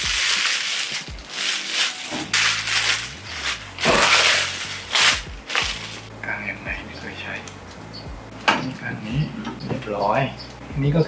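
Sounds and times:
plastic wrapping crinkling: 0.0 - 6.1.

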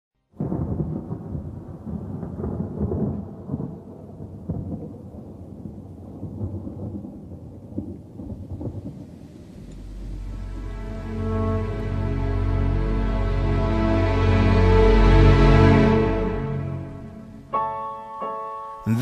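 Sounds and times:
rain: 0.2 - 19.0
rumbling thunder: 0.3 - 13.7.

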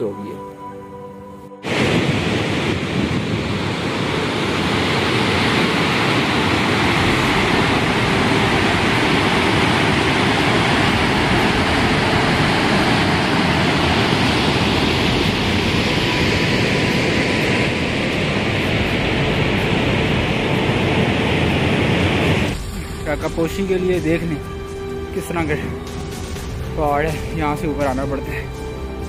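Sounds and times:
waterfall rushing: 1.6 - 24.2.

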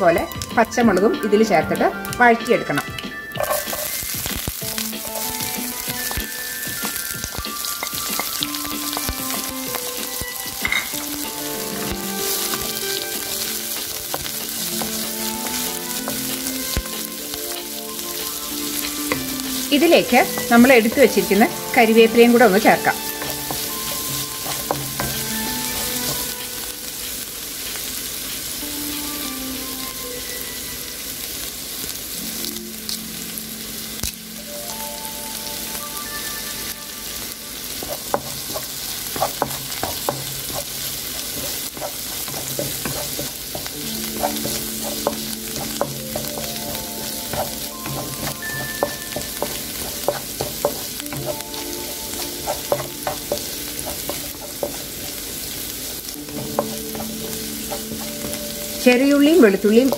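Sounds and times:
vegetables sizzling in hot oil: 0.0 - 59.9
wooden spatula tapping and scraping pan: 0.2 - 4.4, 5.0 - 11.0, 11.7 - 17.6, 18.8 - 26.4, 37.8 - 55.2, 56.2 - 59.9.

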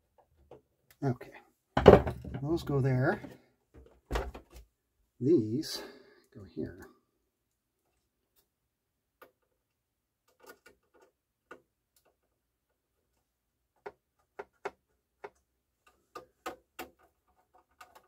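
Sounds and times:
screwdriver clicks and taps on metal: 13.8 - 18.0.

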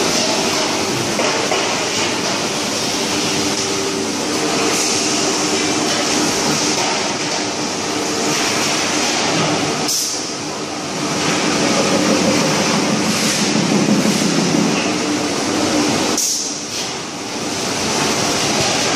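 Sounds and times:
production-line machinery running: 0.0 - 18.9
low hum: 11.1 - 15.8.

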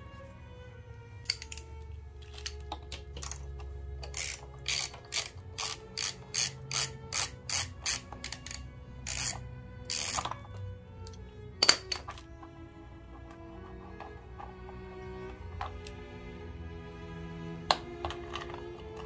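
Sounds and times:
socket ratchet clicking: 1.2 - 12.3.

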